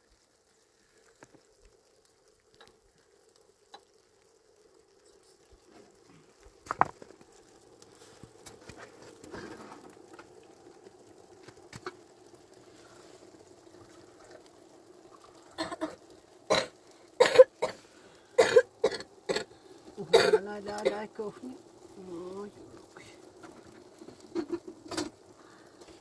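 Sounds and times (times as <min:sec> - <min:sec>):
faint steady hum: 0:00.0 - 0:26.0
person's voice in loud bursts: 0:20.0 - 0:23.2.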